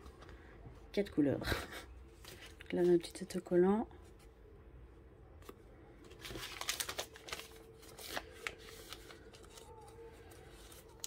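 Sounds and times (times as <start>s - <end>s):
packet crinkling and rustling: 6.0s - 11.0s.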